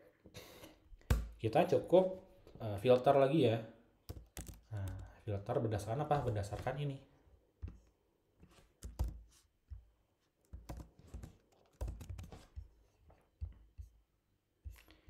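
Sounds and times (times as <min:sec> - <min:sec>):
typing on computer keyboard: 0:04.1 - 0:05.2, 0:08.8 - 0:09.2, 0:10.6 - 0:12.6.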